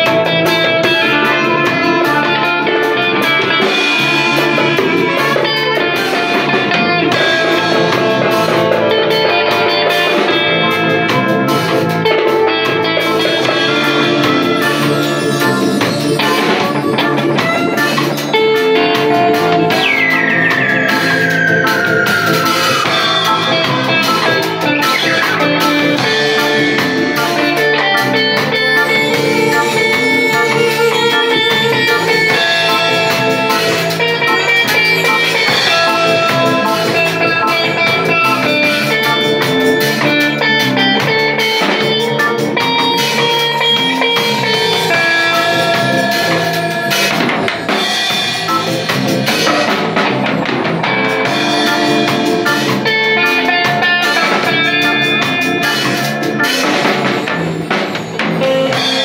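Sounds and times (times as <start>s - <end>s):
live rock band playing: 0.0s - 59.0s
high note sliding down: 13.5s - 40.0s, 42.6s - 50.1s.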